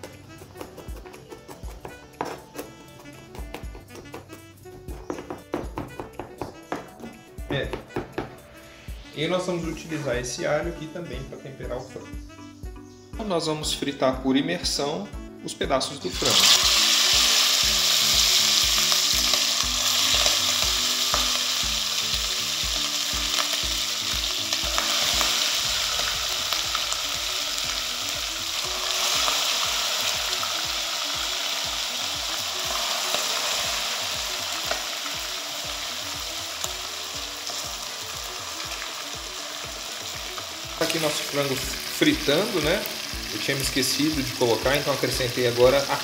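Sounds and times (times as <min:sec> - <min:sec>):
chicken deep-frying in oil: 0:16.1 - 0:46.0.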